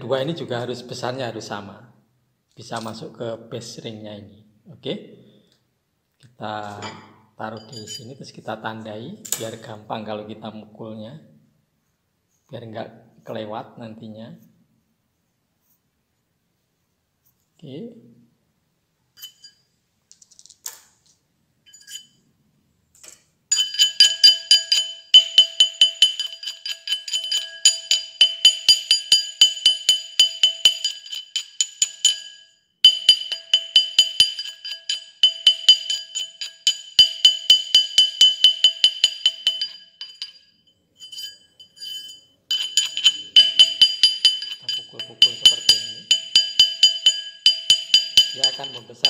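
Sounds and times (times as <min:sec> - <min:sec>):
hammer striking metal ring: 0:06.7 - 0:08.2, 0:23.5 - 0:49.0.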